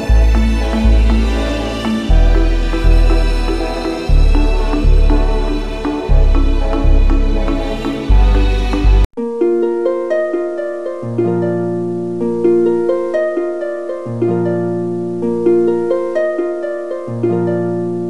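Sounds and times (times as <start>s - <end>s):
low bass note: 0.0s - 9.1s
plucked string music: 0.0s - 18.0s.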